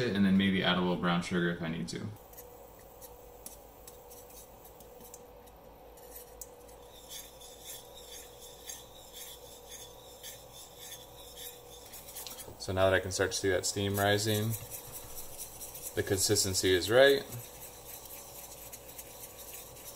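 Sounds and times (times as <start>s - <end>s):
faint steady hum: 0.0s - 19.9s
whisk scraping metal skillet: 6.0s - 19.9s.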